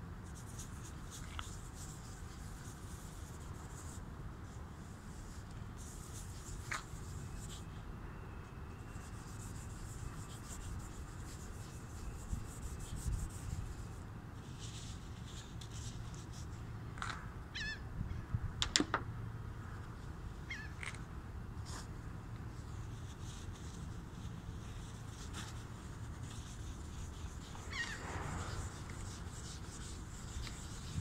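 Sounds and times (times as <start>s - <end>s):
steady low rumble: 25.7s - 31.0s
high sliding squeaks: 27.4s - 31.0s.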